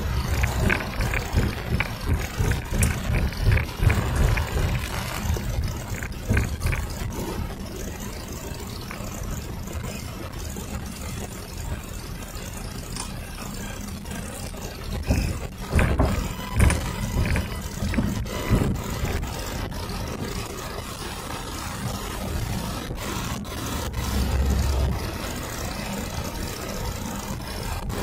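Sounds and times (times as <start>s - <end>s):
thumps and rattles: 0.0s - 9.4s, 14.8s - 20.4s
car engine and road rumble: 0.0s - 28.0s.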